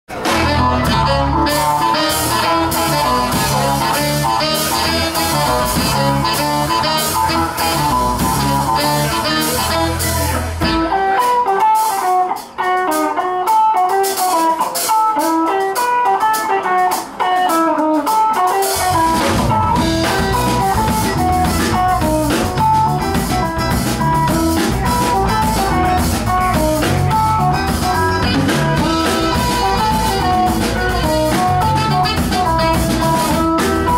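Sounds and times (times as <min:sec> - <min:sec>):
saxophone: 0:00.1 - 0:11.6, 0:18.6 - 0:33.9
bass guitar: 0:00.1 - 0:33.9
drums: 0:00.1 - 0:33.9
electric guitar: 0:00.1 - 0:33.9
keyboard: 0:00.1 - 0:33.9.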